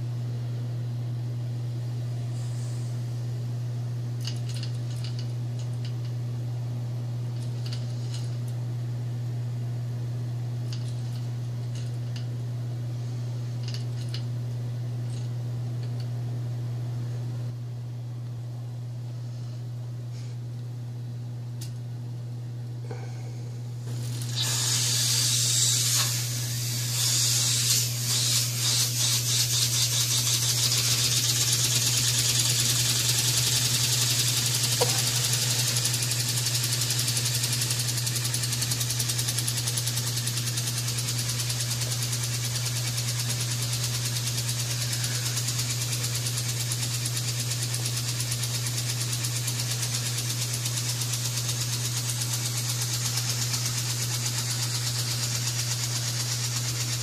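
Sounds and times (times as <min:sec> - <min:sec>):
steady low hum: 0:00.0 - 0:57.0
model steam engine chuffing: 0:24.3 - 0:57.0.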